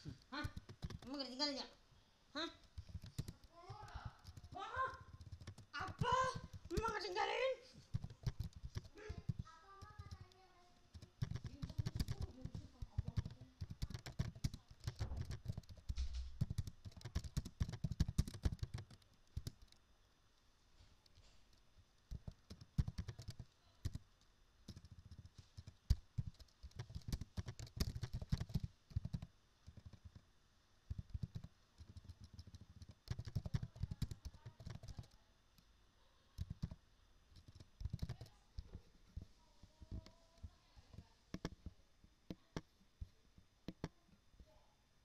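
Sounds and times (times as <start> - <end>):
computer keyboard typing: 0.0 - 1.6, 2.5 - 19.8, 22.1 - 24.1, 24.7 - 30.2, 30.9 - 35.2, 36.4 - 38.8.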